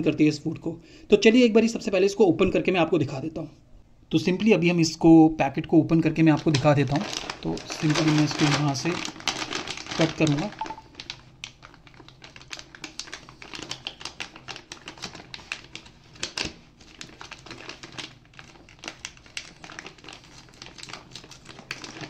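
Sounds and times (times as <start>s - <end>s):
plastic bag crinkling: 6.1s - 22.0s.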